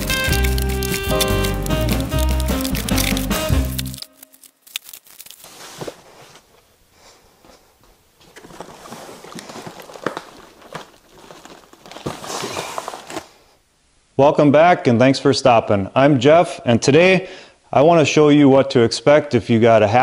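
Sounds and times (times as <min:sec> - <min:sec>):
background music: 0:00.0 - 0:04.4
paper and cardboard rustling: 0:00.0 - 0:06.5, 0:08.2 - 0:13.5
footsteps: 0:00.0 - 0:13.4.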